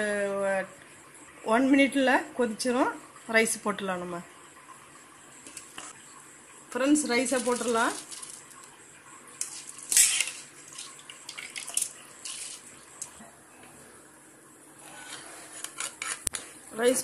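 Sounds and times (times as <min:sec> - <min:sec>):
rice splashing into boiling liquid: 0:06.9 - 0:13.2.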